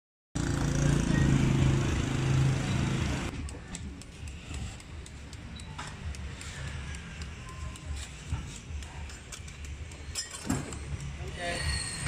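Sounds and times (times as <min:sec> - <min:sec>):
engine humming: 0:00.4 - 0:12.0
knife scoring mango: 0:03.3 - 0:11.4.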